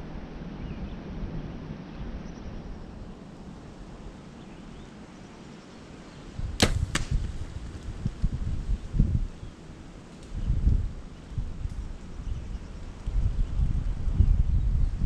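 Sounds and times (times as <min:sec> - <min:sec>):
wind in trees: 0:00.0 - 0:15.0
sharp crack: 0:06.5 - 0:08.0
bow string snapping: 0:06.6 - 0:07.9.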